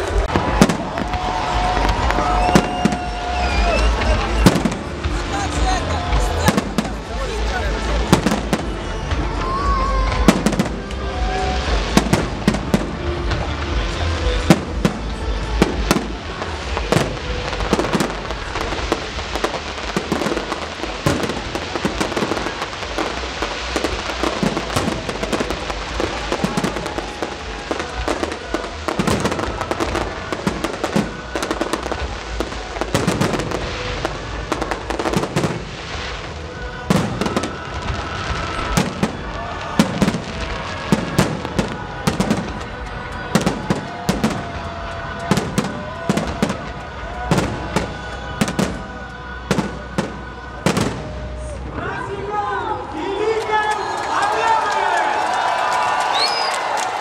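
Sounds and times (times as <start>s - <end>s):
fireworks bursting: 0.0s - 57.0s.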